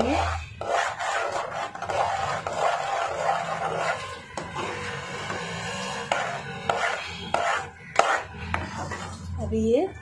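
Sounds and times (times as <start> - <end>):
metal spoon scraping a pot: 0.0 - 9.5.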